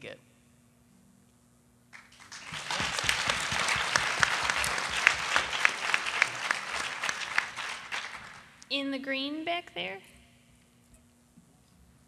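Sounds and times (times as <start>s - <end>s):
audience applause: 2.0s - 8.6s.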